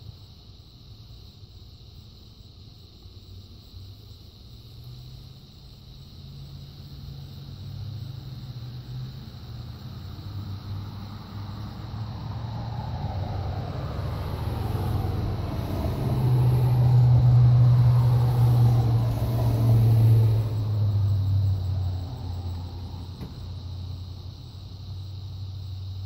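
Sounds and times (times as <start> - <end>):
low engine rumble: 5.4 - 26.0.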